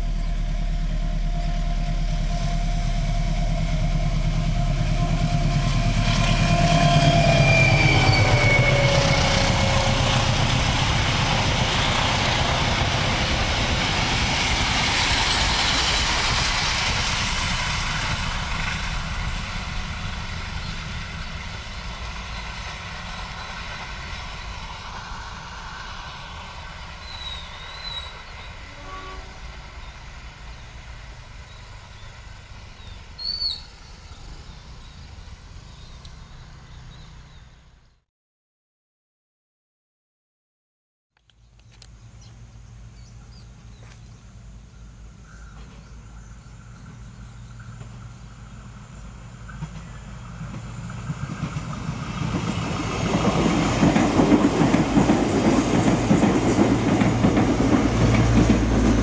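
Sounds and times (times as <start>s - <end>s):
locomotive engine running loudly: 0.0s - 20.7s
train wheels clickety-clack: 5.3s - 30.0s, 45.3s - 48.4s, 49.4s - 59.0s.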